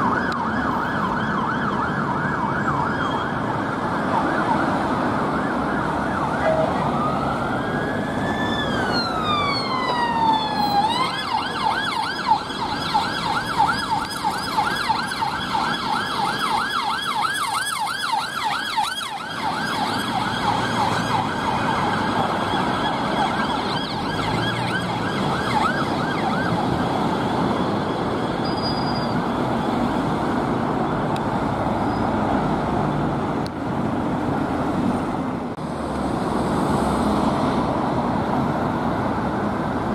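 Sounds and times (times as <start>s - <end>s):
police siren wailing and yelping: 0.0s - 28.5s
road traffic: 0.0s - 39.9s.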